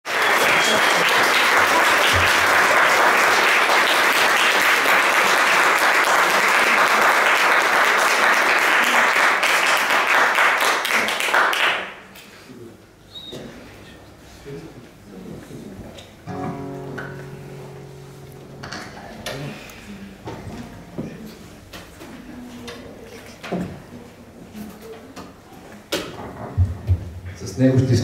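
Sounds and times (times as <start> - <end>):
audience applauding: 0.0 - 12.1.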